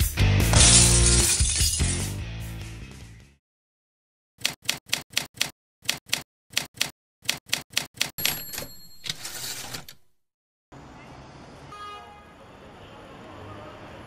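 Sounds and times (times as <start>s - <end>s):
rough typewriter carriage noise: 8.2s - 10.0s
typewriter bell ding: 8.2s - 10.0s.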